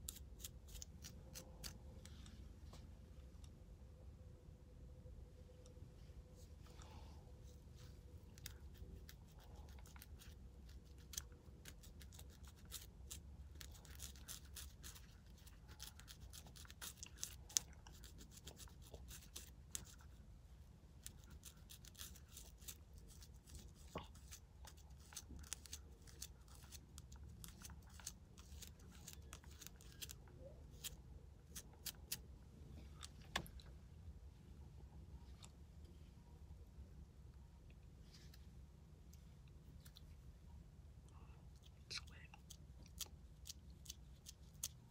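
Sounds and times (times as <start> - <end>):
comb scratching scalp: 0.0 - 1.8, 7.4 - 20.2, 21.0 - 32.2.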